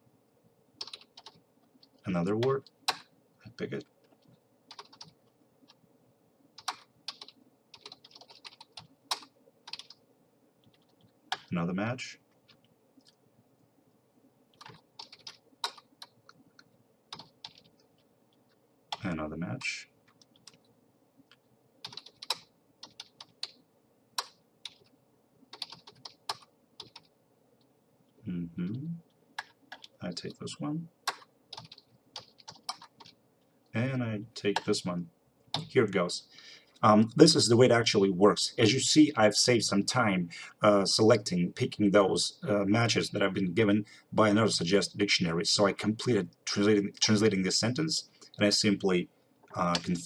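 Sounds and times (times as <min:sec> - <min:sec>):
typing on computer keyboard: 0:00.8 - 0:03.1, 0:04.0 - 0:05.2, 0:06.6 - 0:10.0, 0:14.5 - 0:18.0, 0:21.8 - 0:23.6, 0:24.2 - 0:24.9, 0:25.5 - 0:27.1, 0:29.4 - 0:30.0, 0:31.0 - 0:33.2.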